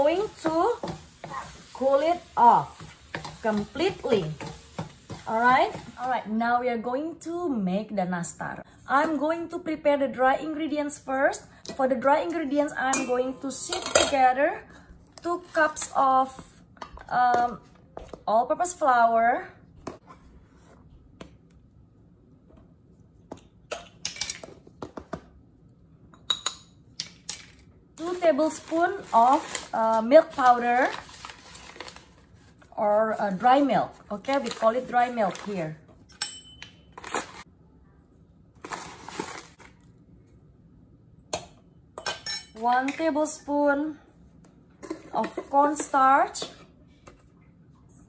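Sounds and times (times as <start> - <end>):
plastic bag rustling: 28.0 - 33.5, 38.6 - 39.8.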